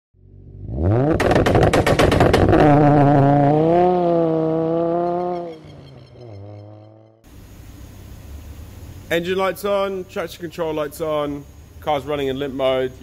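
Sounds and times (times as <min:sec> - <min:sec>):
car engine revving: 0:00.2 - 0:07.3
rapid sharp pops: 0:01.1 - 0:02.6.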